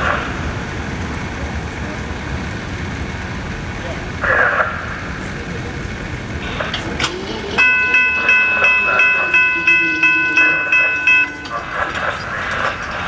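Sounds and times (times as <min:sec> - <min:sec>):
train rumbling: 0:00.0 - 0:13.0
crossing warning bell ringing: 0:06.4 - 0:13.0.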